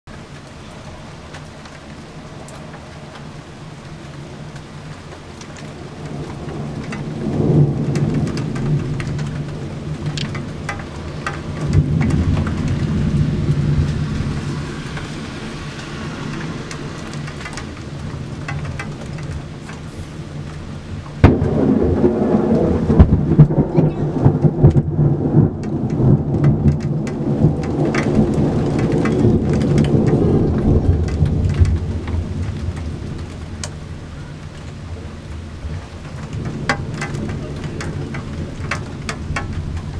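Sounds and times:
steady rain: 0.0s - 39.9s
thunder rumbling: 0.2s - 39.9s
loud thunder crack: 6.1s - 16.8s, 21.2s - 33.3s.

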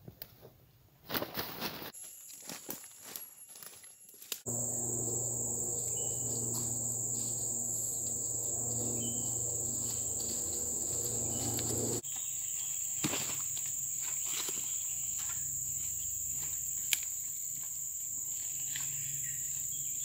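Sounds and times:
high-pitched insect drone: 2.0s - 12.0s
low steady hum: 4.5s - 12.0s.

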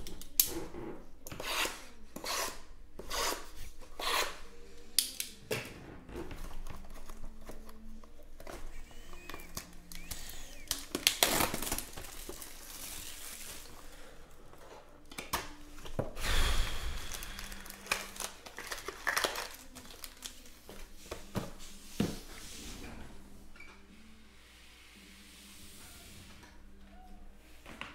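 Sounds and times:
plastic wrapping crinkling: 6.5s - 14.1s, 17.0s - 21.4s.

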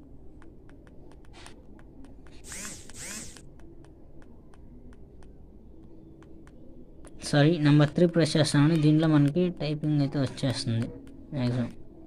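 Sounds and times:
light clicks of phone keypad: 0.3s - 2.4s, 3.3s - 7.2s.

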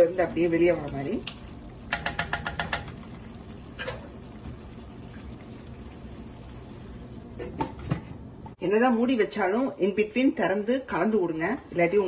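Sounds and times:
curry bubbling in a pan: 0.0s - 7.4s
wooden spatula knocking a pan: 1.9s - 3.1s.

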